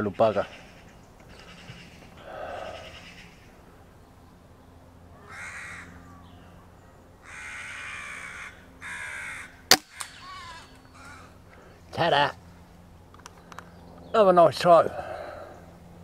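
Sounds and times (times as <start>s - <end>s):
crow cawing: 0.3s - 3.6s, 5.1s - 6.5s, 7.2s - 11.7s.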